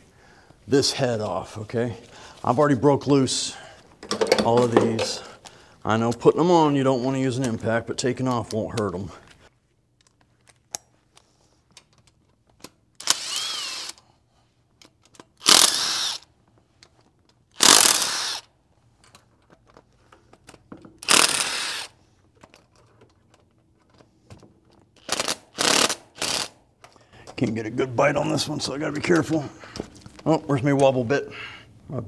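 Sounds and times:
impact wrench bursts: 13.0 - 14.0, 15.4 - 16.3, 17.5 - 18.5, 21.0 - 22.0, 25.0 - 26.6.

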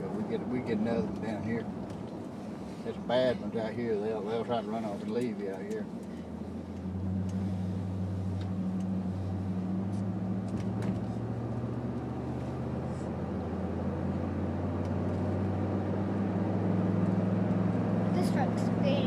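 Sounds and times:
engine hum inside vehicle: 0.0 - 19.0
tyre and road noise: 0.0 - 19.0.

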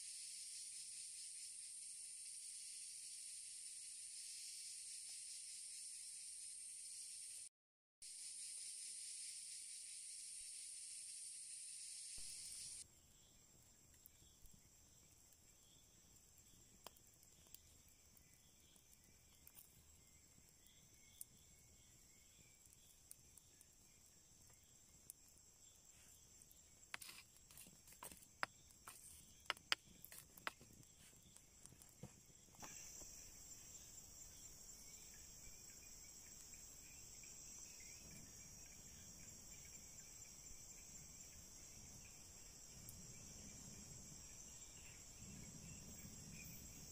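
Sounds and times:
insects chirring: 0.0 - 46.9
campfire crackling: 12.2 - 34.7.

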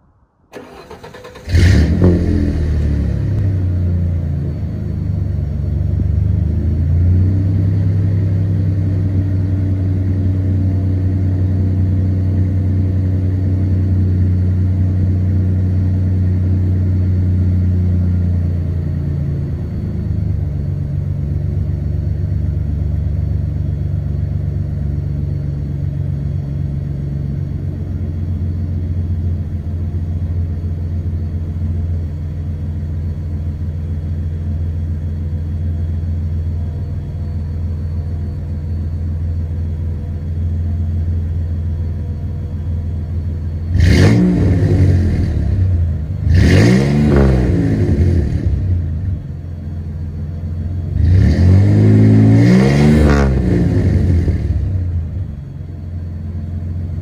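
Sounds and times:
starter cranking: 0.5 - 1.6
engine revving and idling: 0.5 - 57.0.

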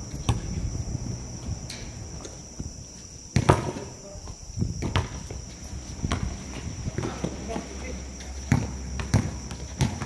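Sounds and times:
basketball thudding on court: 2.6 - 3.9, 4.8 - 5.4, 6.0 - 7.4, 8.5 - 10.0.

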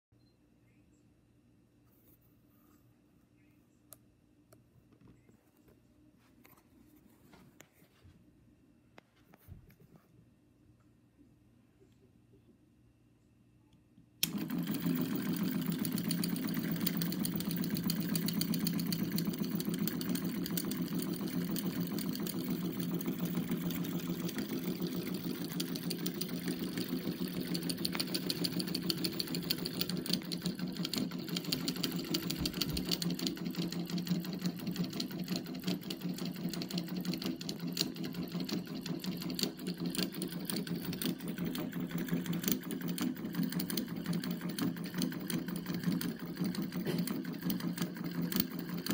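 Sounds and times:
solenoid engine clattering: 14.2 - 48.9.

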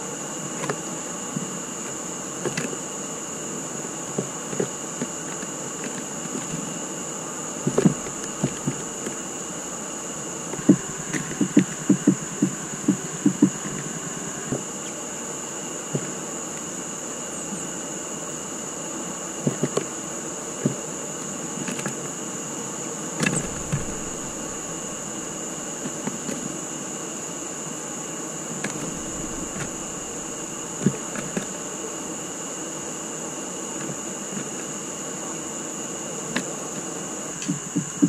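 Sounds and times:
constant high whine: 0.0 - 38.0
steady hiss: 6.0 - 17.8, 22.5 - 33.0.

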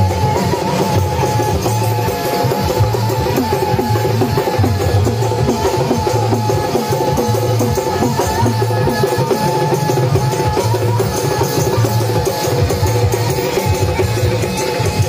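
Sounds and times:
drums and percussion rhythm: 0.0 - 15.0.

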